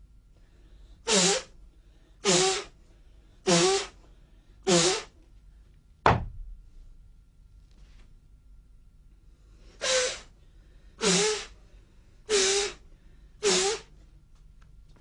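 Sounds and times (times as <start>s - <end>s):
sharp thump: 6.0s - 6.6s
forceful voiced breaths: 9.4s - 14.0s.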